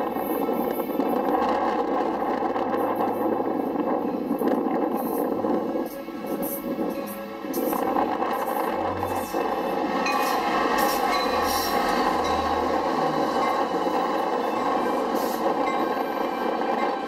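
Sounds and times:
passenger train passing: 0.0 - 17.0.

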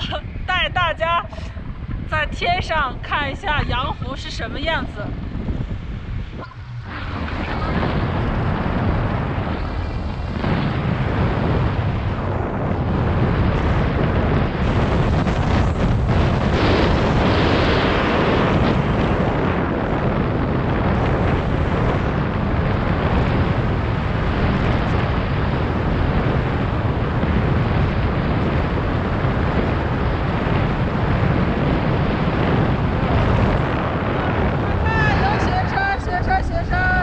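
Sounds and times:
wind buffeting microphone: 0.0 - 37.0.

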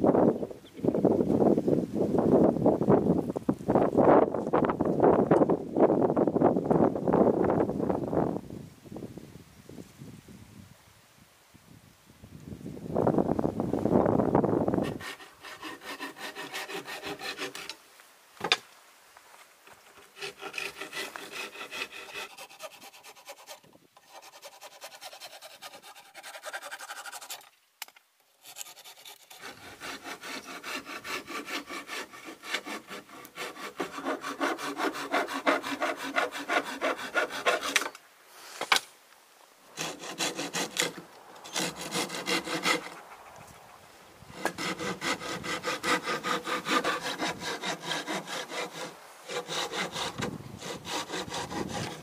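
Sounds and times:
hand saw cutting wood: 14.8 - 17.8, 19.9 - 27.5, 28.4 - 38.0, 39.8 - 43.0, 44.3 - 52.0.

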